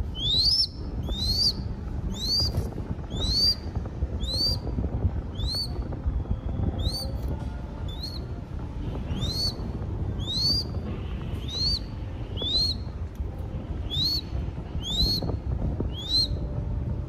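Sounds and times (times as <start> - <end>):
hawk chick calling: 0.1 - 3.6, 9.2 - 9.6, 10.2 - 10.7, 11.4 - 12.8.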